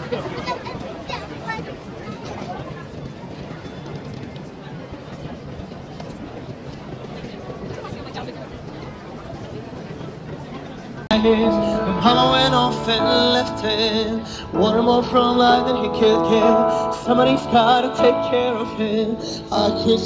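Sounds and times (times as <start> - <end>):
person singing: 11.1 - 20.0.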